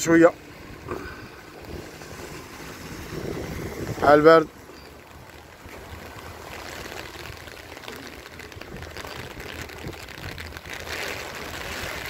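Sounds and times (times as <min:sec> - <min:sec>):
rain on a wet street: 0:00.0 - 0:12.0.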